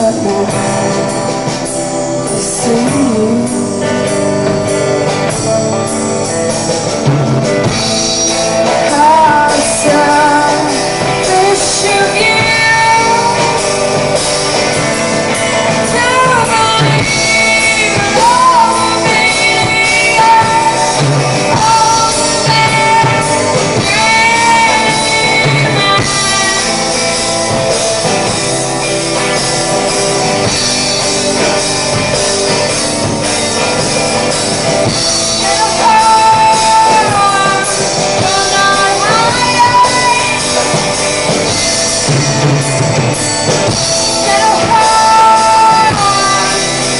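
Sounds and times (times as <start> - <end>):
woman singing: 0.0 - 4.8, 7.8 - 28.4, 34.9 - 42.5, 43.8 - 46.9
rock band playing: 0.0 - 46.9.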